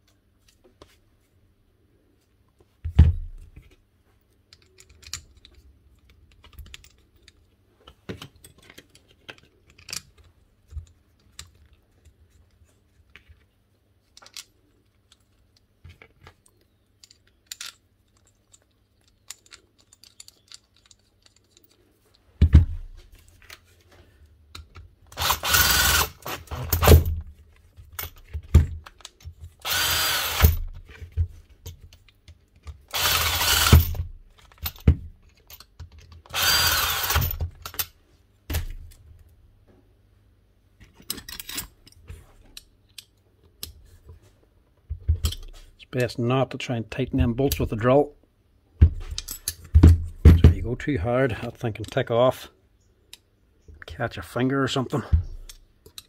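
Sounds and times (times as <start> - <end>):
small metal parts clicking: 4.5 - 7.5, 8.3 - 12.6, 14.0 - 22.2, 31.6 - 37.9, 55.3 - 56.0
power drill bursts: 25.2 - 27.0, 29.6 - 30.6, 32.9 - 33.9, 36.3 - 37.4.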